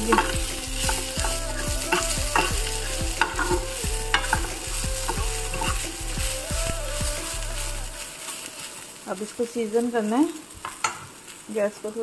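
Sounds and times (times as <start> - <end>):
spatula knocking and scraping pan: 0.0 - 6.7
food sizzling in a frying pan: 0.0 - 12.0.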